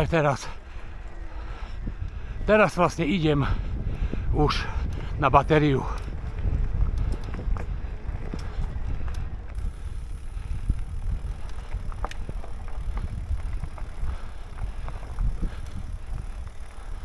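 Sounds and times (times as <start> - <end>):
wind on microphone: 0.9 - 17.0
small clicks and rattles: 5.8 - 17.0.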